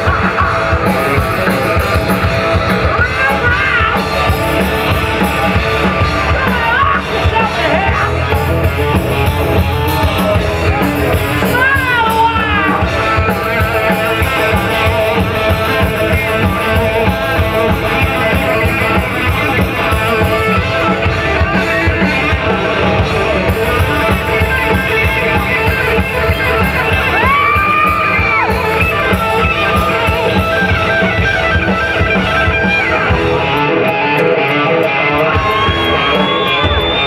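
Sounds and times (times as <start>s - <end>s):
bent wavering guitar notes: 0.0s - 37.0s
rock band playing: 0.0s - 37.0s.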